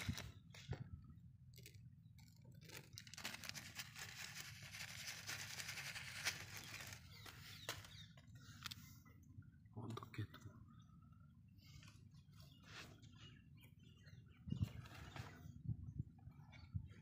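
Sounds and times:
plastic bag crinkling: 1.6s - 8.0s.

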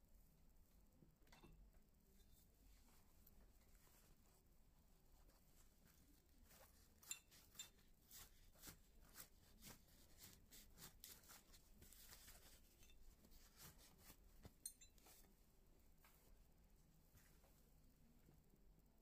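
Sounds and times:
cloth rubbing on metal wheel: 2.3s - 15.3s
light metallic clinks: 14.6s - 15.1s.

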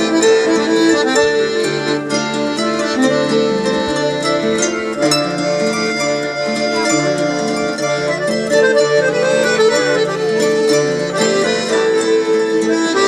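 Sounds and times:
accordion playing a tune: 0.0s - 13.0s.

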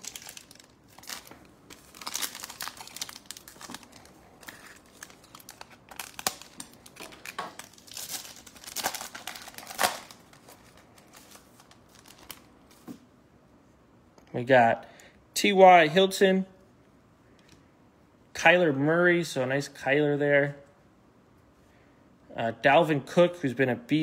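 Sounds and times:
wrapper tearing and crinkling: 0.0s - 12.5s.

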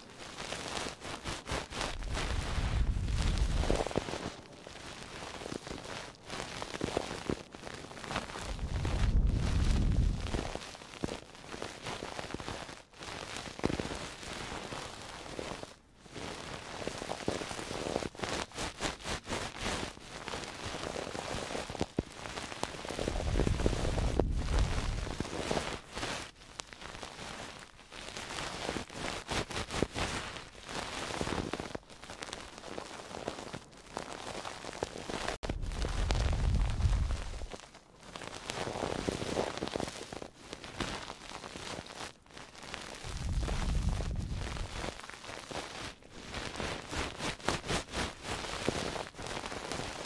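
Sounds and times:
rubbing and scratching on microphone: 0.0s - 50.0s
microphone handling rumble: 2.0s - 3.9s, 8.4s - 10.4s, 23.0s - 25.1s, 35.4s - 37.5s, 43.0s - 44.8s.

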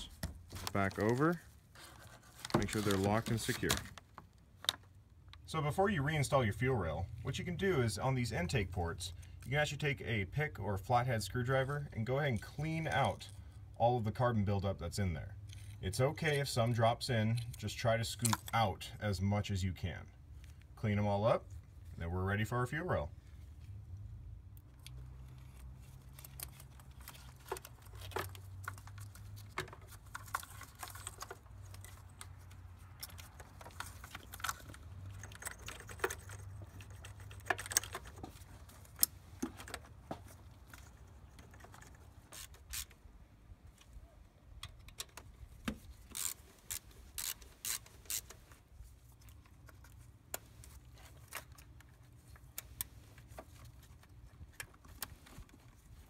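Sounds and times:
small clicks and knocks: 24.6s - 43.0s.

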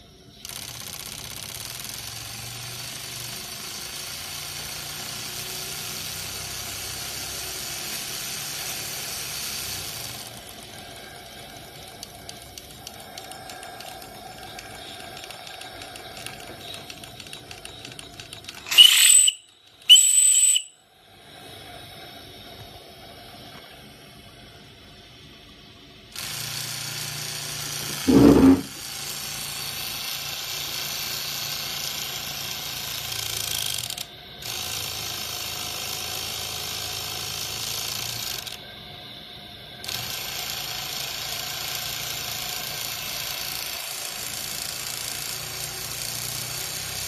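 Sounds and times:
fast light mechanical ticking: 0.0s - 20.0s, 26.0s - 38.7s, 39.9s - 47.0s
steam hissing: 1.7s - 18.0s, 18.6s - 33.5s, 34.1s - 47.0s
steam whistle blasts: 18.7s - 20.8s.

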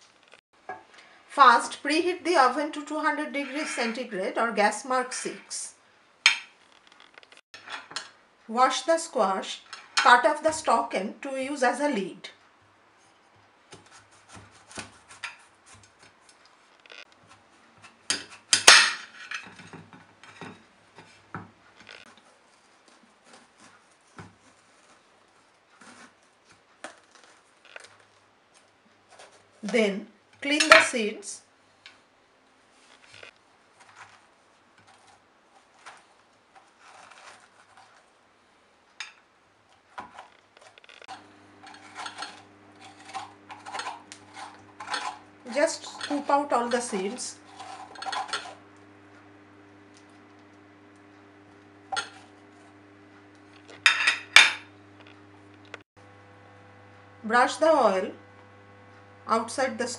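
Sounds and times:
knife cutting squash: 13.7s - 16.2s
utensil scraping squash seeds: 34.8s - 38.2s, 40.6s - 49.3s.

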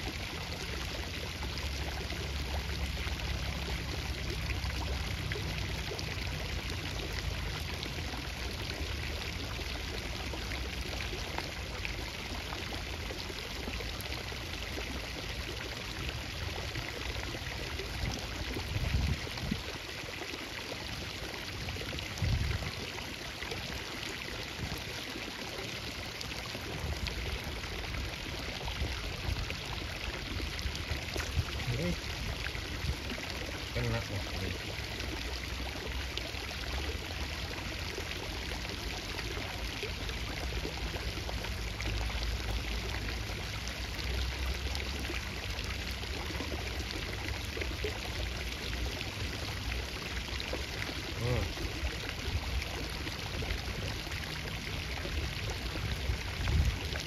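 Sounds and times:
flowing water rushing: 0.0s - 57.0s.

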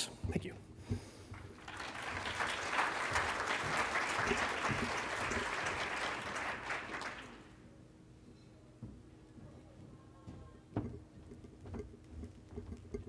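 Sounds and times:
audience applauding: 1.4s - 7.6s.

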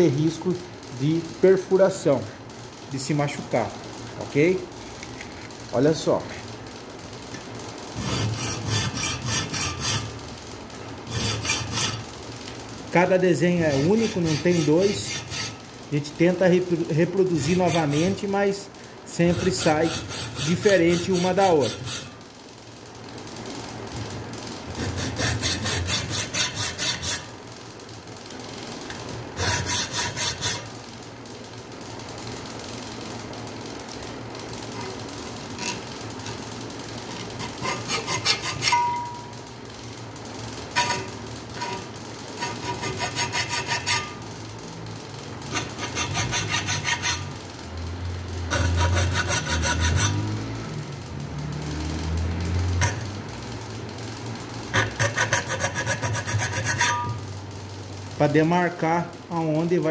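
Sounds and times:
file rasping on steel: 8.0s - 10.2s, 11.1s - 12.0s, 13.5s - 15.6s, 17.2s - 18.4s, 19.2s - 22.2s, 24.8s - 27.3s, 29.4s - 30.7s, 37.2s - 39.2s, 40.8s - 44.2s, 45.5s - 47.4s, 48.5s - 50.4s, 52.8s - 53.0s, 54.7s - 57.2s.

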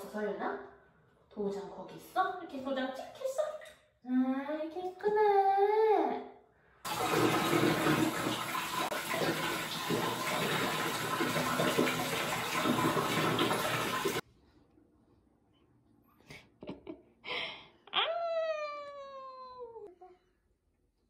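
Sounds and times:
water running into a bathtub: 6.9s - 14.2s.

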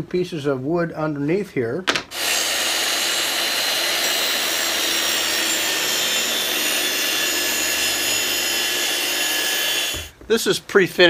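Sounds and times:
circular saw cutting plywood: 2.1s - 10.2s.

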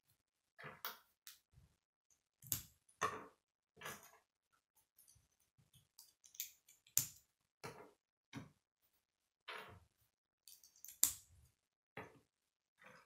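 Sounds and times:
plastic pieces clicking: 10.5s - 11.2s.

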